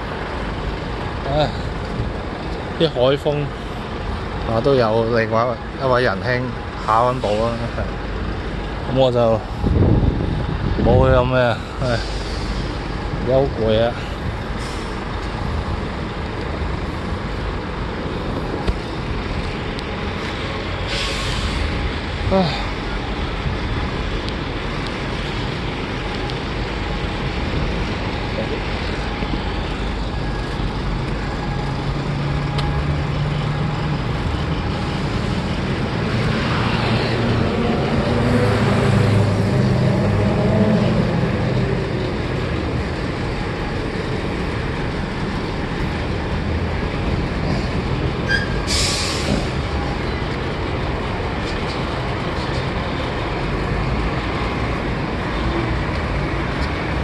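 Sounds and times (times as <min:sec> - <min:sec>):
truck diesel engine passing: 0:11.6 - 0:57.0
air brakes hiss: 0:11.8 - 0:12.8, 0:14.6 - 0:15.0, 0:20.9 - 0:21.8, 0:48.3 - 0:49.5.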